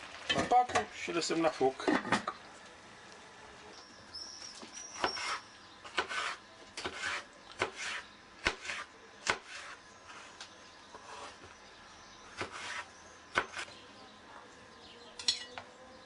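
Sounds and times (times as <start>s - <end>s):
knife scraping slices: 5.0s - 10.4s, 11.0s - 11.4s, 12.3s - 13.7s.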